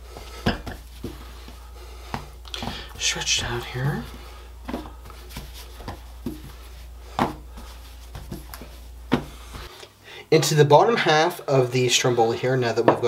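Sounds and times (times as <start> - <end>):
hands patting dough on board: 0.1 - 9.7.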